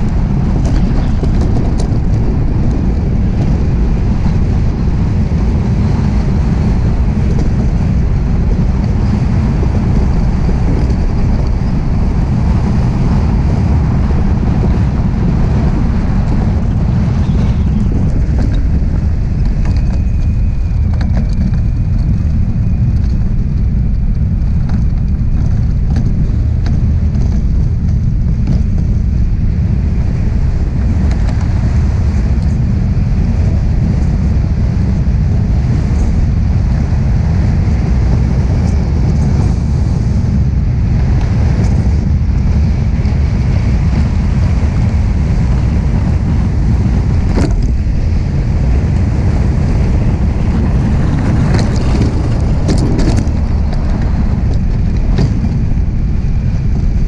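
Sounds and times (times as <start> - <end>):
runners rumbling on ice: 0.0 - 57.0
wind buffeting microphone: 0.0 - 57.0.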